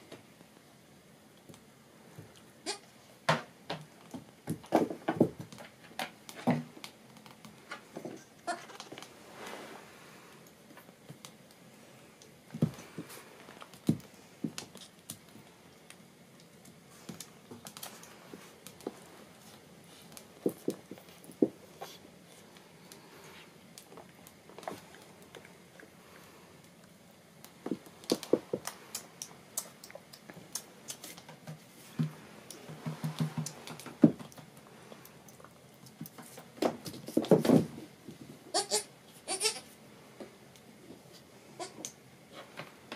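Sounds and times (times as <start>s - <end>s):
claws and hooves on wooden floor: 12.5s - 26.3s, 27.4s - 38.3s.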